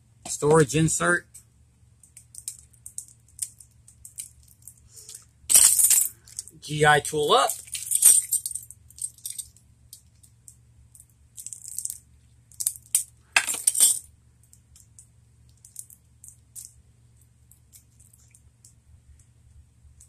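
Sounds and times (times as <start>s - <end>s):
faint low hum: 0.0s - 20.0s
small hard items clicking: 2.0s - 6.6s, 7.5s - 18.8s.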